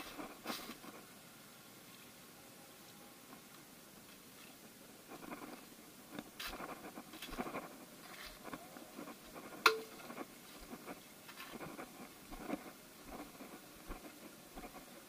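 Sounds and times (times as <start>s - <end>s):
footsteps through dry leaves: 6.4s - 14.8s.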